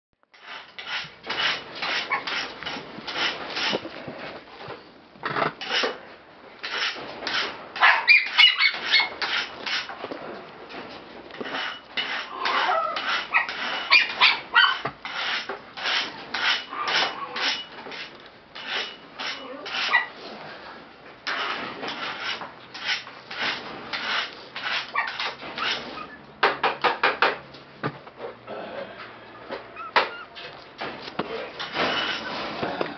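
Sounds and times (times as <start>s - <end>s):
puppy whimpering: 29.4s - 30.6s.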